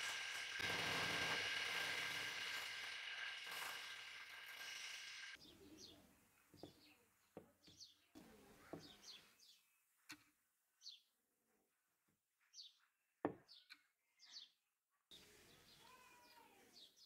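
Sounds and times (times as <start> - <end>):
sanding drum grinding: 0.0 - 5.4.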